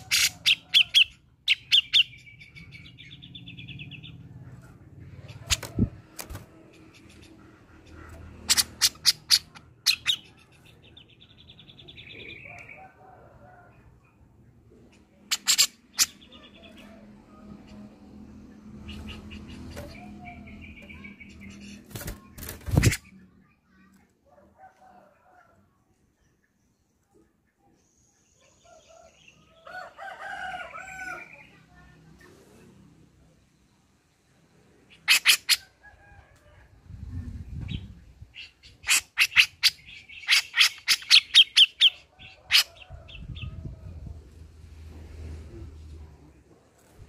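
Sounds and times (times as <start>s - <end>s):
bird chattering calls: 0.0s - 4.2s, 6.8s - 10.5s, 15.3s - 16.7s, 34.9s - 35.6s, 38.4s - 42.8s
wings flapping: 5.4s - 6.8s, 21.7s - 23.1s.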